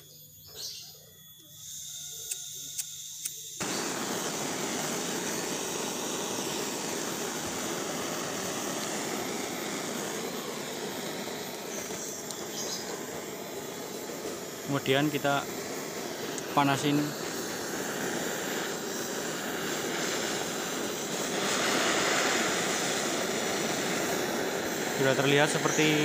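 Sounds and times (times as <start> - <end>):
blowtorch burning with loud hiss: 0.0 - 26.0
gas hissing from nozzle: 1.5 - 26.0
lighter clicks: 2.2 - 4.6, 11.0 - 14.4, 15.7 - 16.5.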